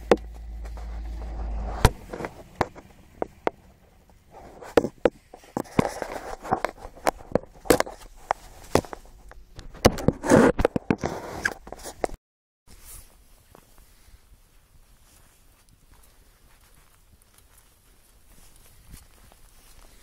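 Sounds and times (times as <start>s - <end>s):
low steady hum: 0.0s - 10.0s
handheld camera clicks and rustles: 1.8s - 12.2s.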